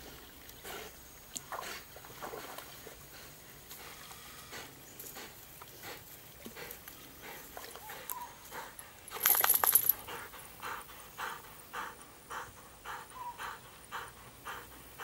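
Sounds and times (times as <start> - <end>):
dog panting: 3.1 - 15.0.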